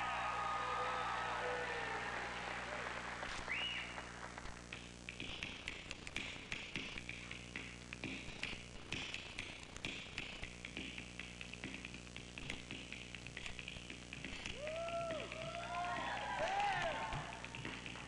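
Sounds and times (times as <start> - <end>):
audience noise: 0.0 - 4.6.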